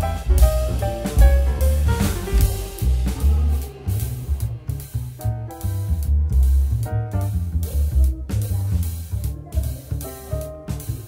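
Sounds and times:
jazzy music with drums and bass: 0:00.0 - 0:11.0.

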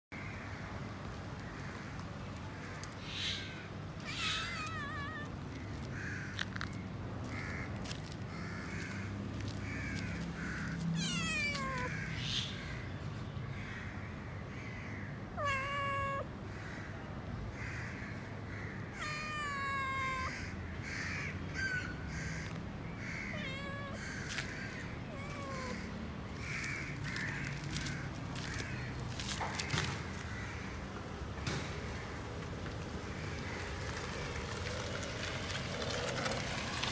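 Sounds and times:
cat meowing: 0:04.0 - 0:05.4, 0:10.9 - 0:12.0, 0:15.4 - 0:16.3, 0:18.9 - 0:20.5, 0:23.3 - 0:24.4, 0:25.1 - 0:25.9.

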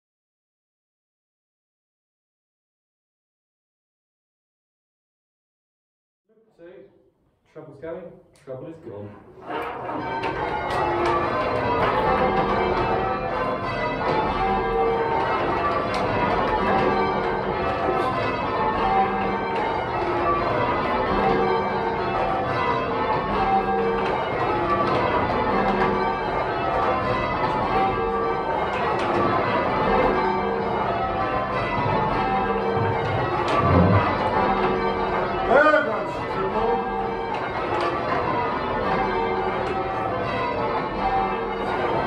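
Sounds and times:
church bells ringing: 0:09.1 - 0:42.0.

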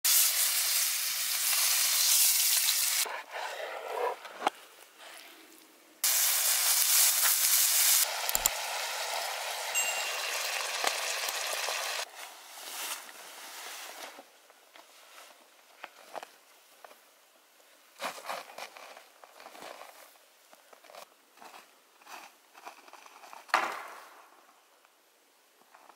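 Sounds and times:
steak sizzling in a skillet: 0:00.1 - 0:03.0, 0:06.0 - 0:12.0.

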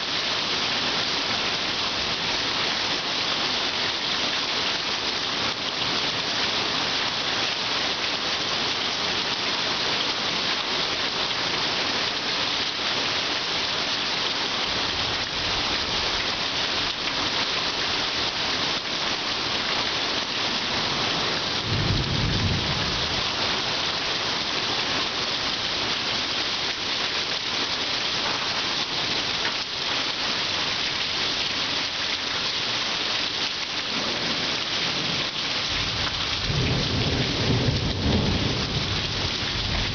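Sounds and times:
heavy rain falling: 0:00.0 - 0:39.9
low rumble of thunder: 0:21.6 - 0:23.2, 0:35.8 - 0:39.9.

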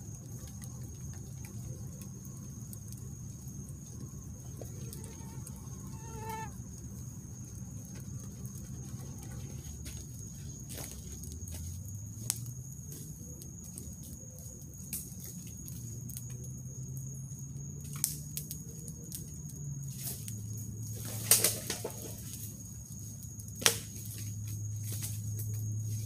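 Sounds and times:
burning wood popping: 0:00.0 - 0:14.1, 0:20.0 - 0:25.8
rush of campfire flames: 0:00.0 - 0:26.0.

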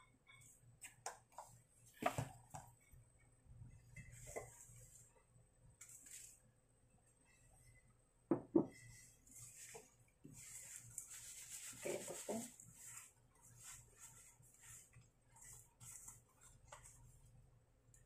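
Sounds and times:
tofu rustling in powder: 0:05.8 - 0:06.5, 0:08.8 - 0:17.3
metal bowl knocking on countertop: 0:08.3 - 0:08.7.

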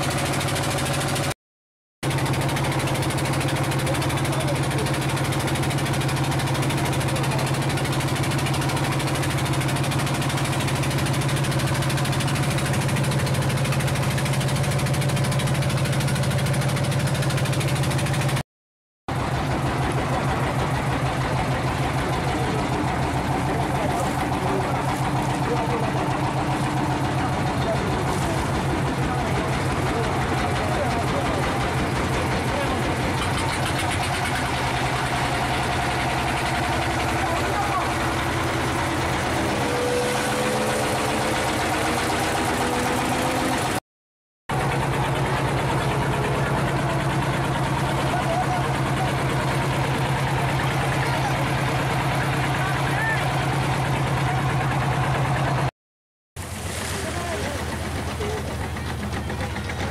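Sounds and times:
motorboat engine drone: 0:00.0 - 0:01.3, 0:02.0 - 0:18.4, 0:19.1 - 0:43.8, 0:44.5 - 0:55.7, 0:56.4 - 0:59.9
water rushing past hull: 0:56.4 - 0:59.8.

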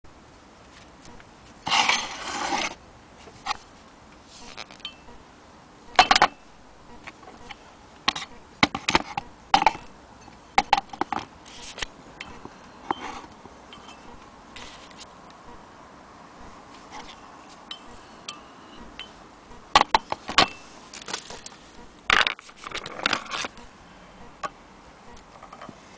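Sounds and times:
handling noise: 0:18.8 - 0:23.7.

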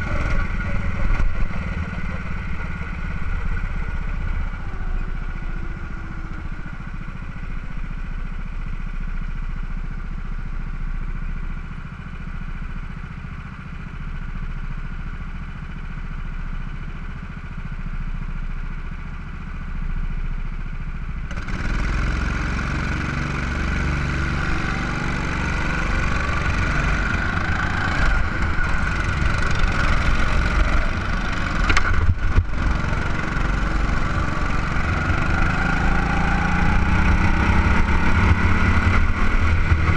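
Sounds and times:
go-kart engine running: 0:00.0 - 0:39.9.

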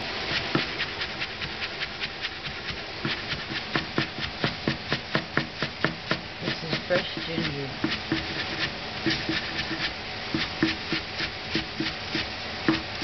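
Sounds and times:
cleaver chopping on plastic board: 0:03.1 - 0:13.0.

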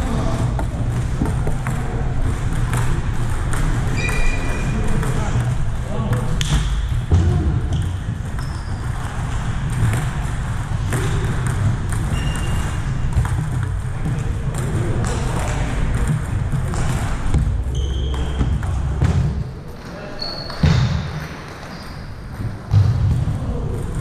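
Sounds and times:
table tennis balls clicking: 0:00.3 - 0:07.1, 0:07.7 - 0:19.1
short high squeaks: 0:04.0 - 0:04.7.

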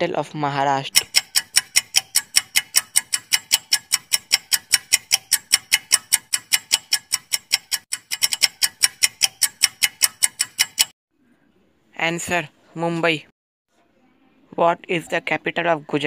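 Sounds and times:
clock ticking: 0:00.9 - 0:11.0.

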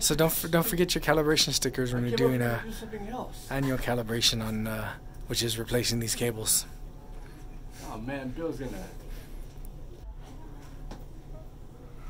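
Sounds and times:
faint background voices: 0:06.8 - 0:12.0.

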